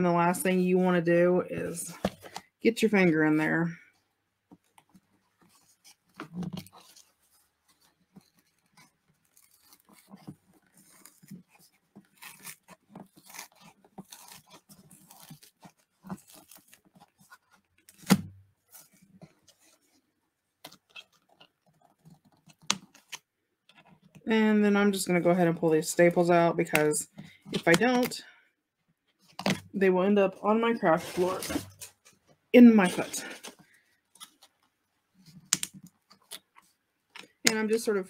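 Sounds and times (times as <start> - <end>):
paper rustling and crinkling: 4.6 - 20.0, 30.8 - 32.2.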